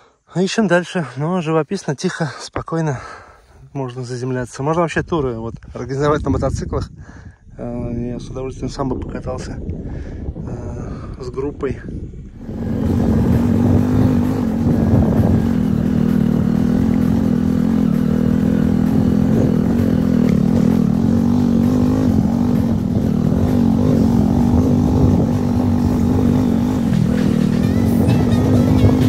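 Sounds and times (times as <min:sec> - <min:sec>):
motorcycle engine running: 0:11.9 - 0:29.0.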